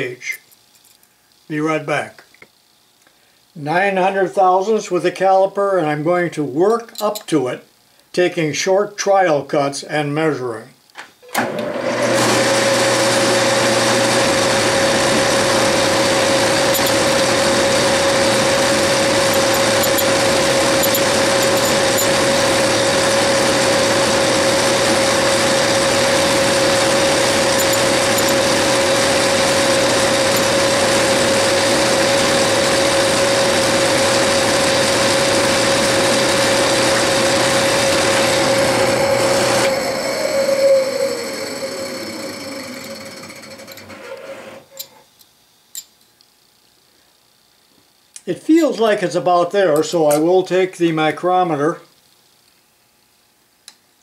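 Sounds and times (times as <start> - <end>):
lathe chuck spinning down: 11.4 - 44.0
metal lathe whining: 11.4 - 45.0.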